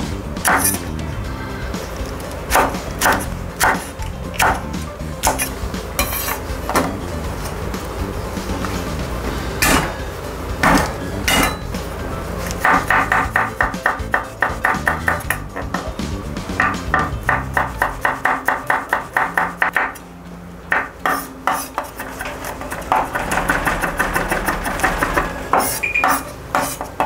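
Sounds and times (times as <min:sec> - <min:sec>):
background music: 0:00.0 - 0:27.0
knife chopping on wooden board: 0:00.5 - 0:00.8, 0:02.5 - 0:07.0, 0:10.6 - 0:11.6, 0:12.4 - 0:15.9, 0:16.6 - 0:20.0, 0:20.7 - 0:27.0.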